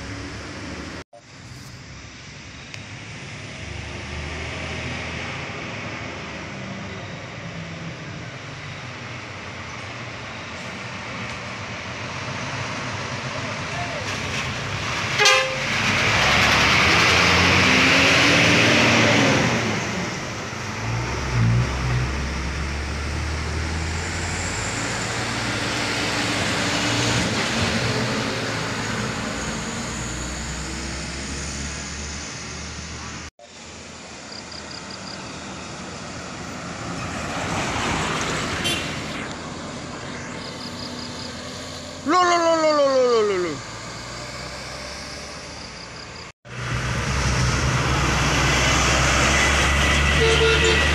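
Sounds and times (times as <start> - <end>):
buses and trucks driving past: 0.0 - 50.9
vehicle horn: 15.2 - 15.7, 38.6 - 39.0, 50.0 - 50.9.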